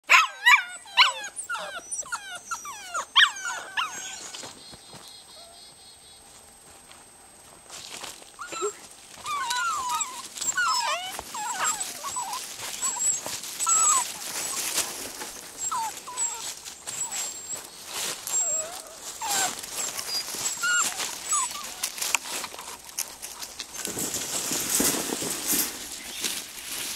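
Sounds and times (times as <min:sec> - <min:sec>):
puppies whining and yelping: 0:00.1 - 0:04.6, 0:08.4 - 0:26.4
dry leaves rustling: 0:06.8 - 0:26.9.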